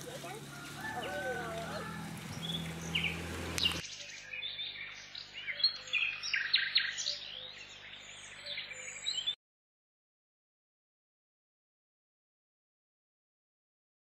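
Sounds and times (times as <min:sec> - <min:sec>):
small birds chirping: 0:00.0 - 0:09.4.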